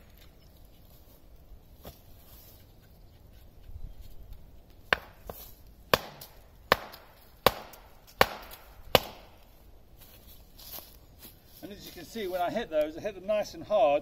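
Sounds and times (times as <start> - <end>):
wood striking wooden stake: 4.8 - 9.5.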